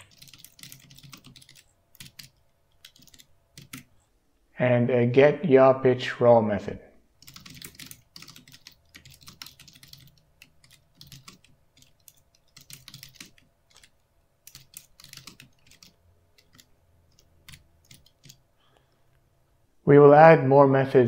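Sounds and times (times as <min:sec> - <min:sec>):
keyboard typing: 0:00.0 - 0:03.9, 0:07.2 - 0:18.5.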